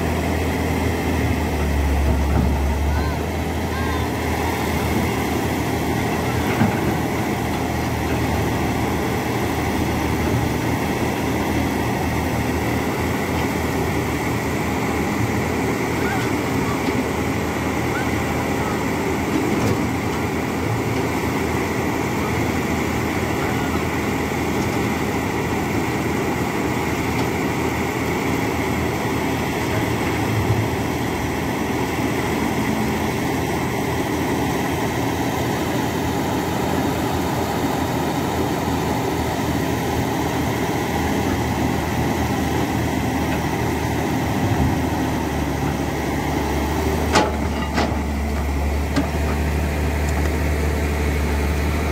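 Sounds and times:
excavator diesel engine running: 0.0 - 51.9.

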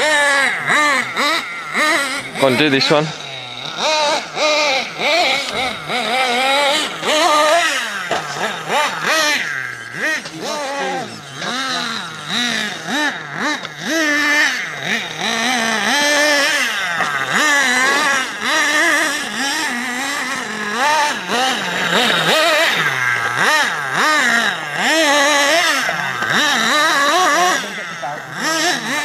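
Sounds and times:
rc buggy engine revving: 0.0 - 29.0.

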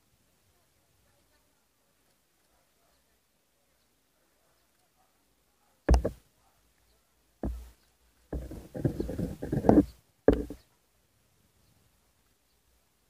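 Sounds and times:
dog barking: 2.4 - 3.2, 4.3 - 7.2.

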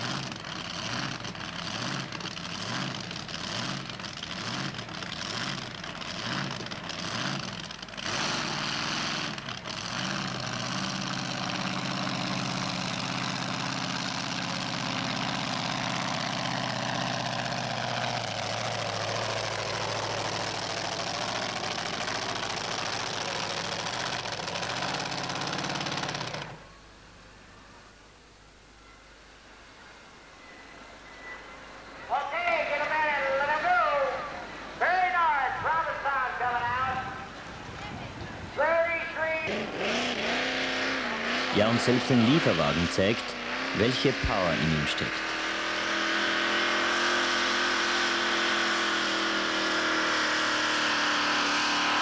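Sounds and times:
truck engine revving: 0.0 - 26.7, 38.6 - 52.0.

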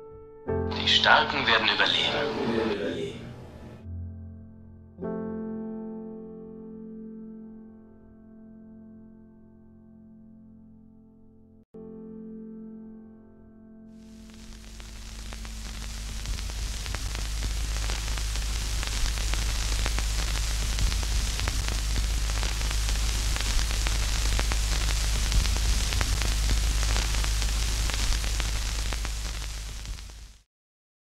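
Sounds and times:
crackling static hiss: 0.7 - 3.8, 14.0 - 30.5
deep steady rumble: 14.2 - 30.3.

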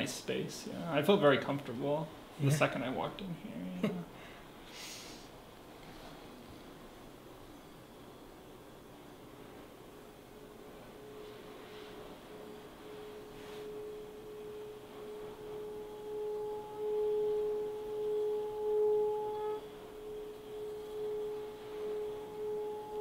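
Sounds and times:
singing bowl ringing tone: 6.0 - 23.0.

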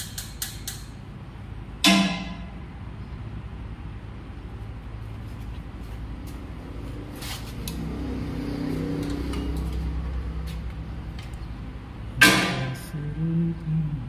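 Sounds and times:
metallic spanner clicks: 0.0 - 1.0
steady low hum: 0.0 - 14.0.

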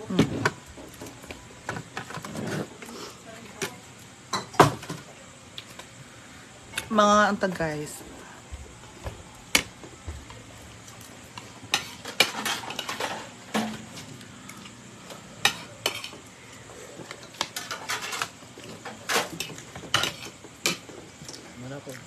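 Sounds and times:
dishes and utensils clinking: 11.6 - 14.1, 15.4 - 16.2, 17.0 - 21.0.

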